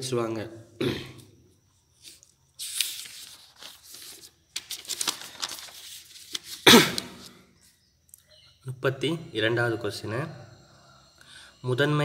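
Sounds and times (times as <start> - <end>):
paper rustling and crinkling: 2.0 - 7.4.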